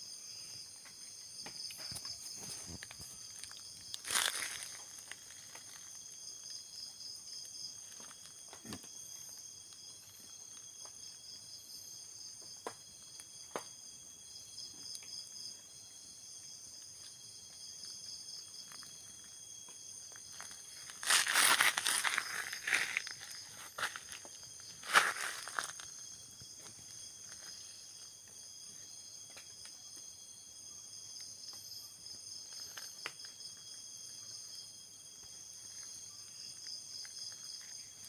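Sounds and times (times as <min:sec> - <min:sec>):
insects chirring: 0:00.0 - 0:38.0
rustling in dry leaves: 0:02.3 - 0:06.1, 0:20.2 - 0:26.0.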